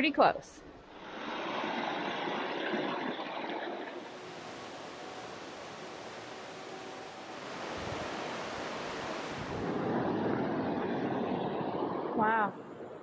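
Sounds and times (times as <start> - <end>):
mountain stream rushing: 3.8 - 10.2.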